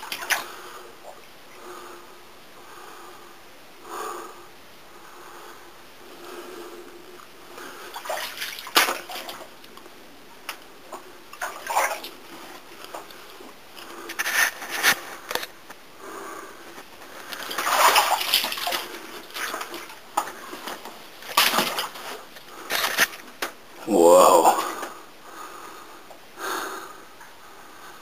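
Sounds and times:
footsteps wading through water: 0:07.9 - 0:09.5, 0:17.3 - 0:23.1.

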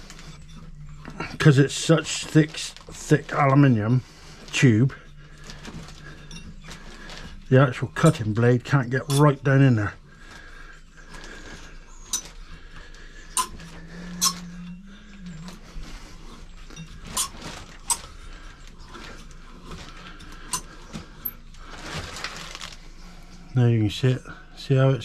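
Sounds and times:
pipe cutter clicking and creaking: 0:04.4 - 0:15.6, 0:16.3 - 0:21.4.

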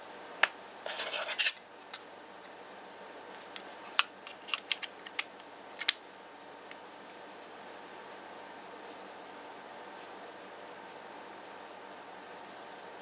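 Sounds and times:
phone battery cover scraping: 0:00.9 - 0:01.6
sharp clicks of cover snapping: 0:04.0 - 0:06.0.

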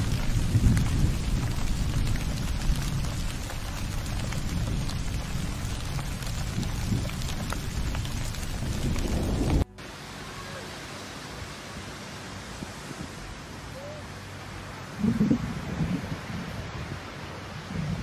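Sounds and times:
deep low rumble: 0:00.0 - 0:09.8
steady rain: 0:00.0 - 0:18.0.

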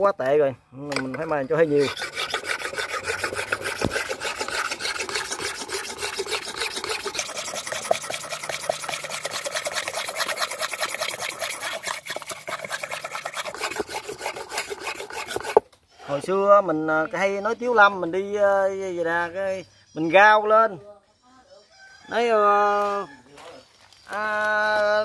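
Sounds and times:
blade scraping on whetstone: 0:01.0 - 0:15.6.

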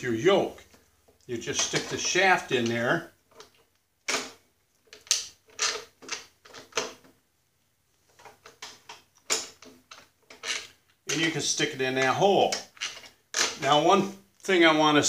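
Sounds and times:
metal clicks and clunks: 0:00.6 - 0:07.2, 0:08.2 - 0:11.4.

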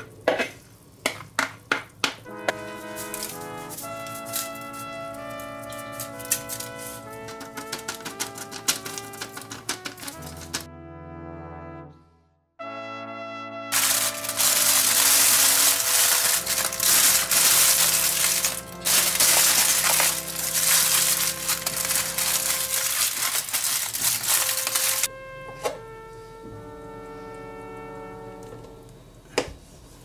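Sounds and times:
background music: 0:02.2 - 0:29.2
loud crackling crunching noise: 0:02.5 - 0:10.7, 0:13.7 - 0:25.1.

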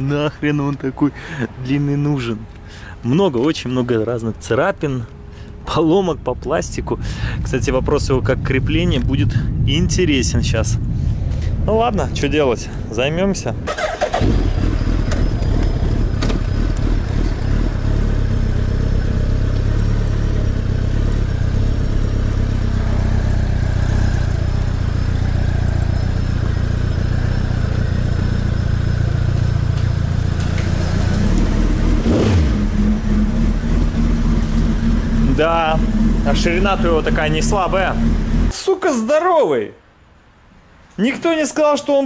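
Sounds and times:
motorcycle engine at low revs: 0:13.6 - 0:38.5.

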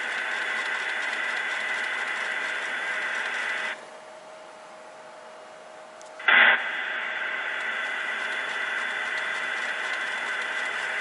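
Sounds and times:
steam hiss sound effect: 0:06.2 - 0:11.0.

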